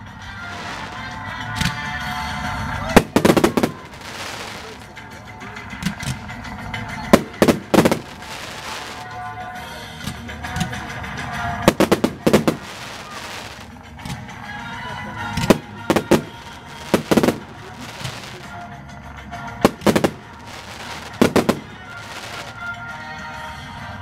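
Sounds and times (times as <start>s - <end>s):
background music: 0.0s - 24.0s
fireworks bangs: 0.4s - 1.8s, 2.9s - 5.1s, 7.0s - 9.2s, 11.1s - 14.2s, 15.3s - 18.6s, 19.5s - 22.7s.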